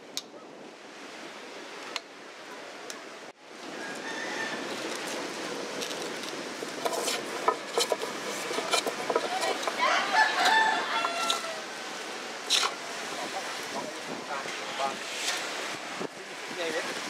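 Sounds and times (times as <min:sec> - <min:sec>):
outdoor background hiss: 0:00.0 - 0:17.0
hand plane knocking and scraping: 0:06.8 - 0:09.8.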